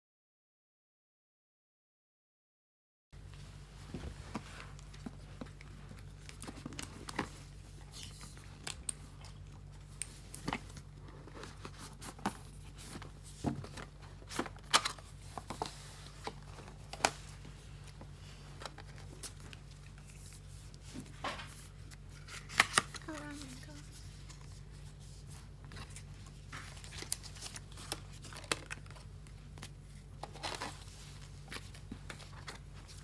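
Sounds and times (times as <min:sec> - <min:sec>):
cardboard scraping and rustling: 0:18.0 - 0:33.0.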